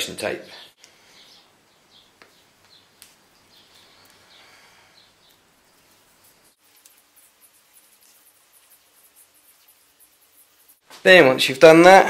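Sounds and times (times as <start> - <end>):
faint bird chirps: 0.5 - 10.8
faint tape rustles: 0.7 - 11.2.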